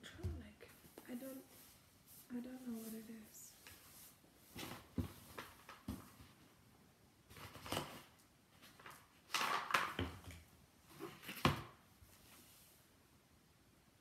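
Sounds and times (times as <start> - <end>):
rustling and scraping of packaging: 0.9 - 6.6, 7.3 - 12.7.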